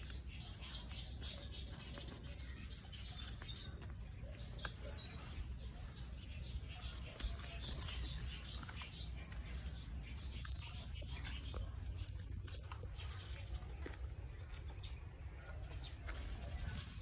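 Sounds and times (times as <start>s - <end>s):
trowel scraping dry soil: 0.0s - 12.1s.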